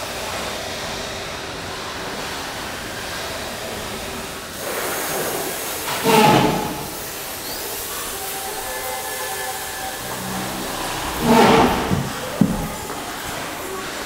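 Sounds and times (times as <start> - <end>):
indoor concourse hiss: 0.0 - 14.0.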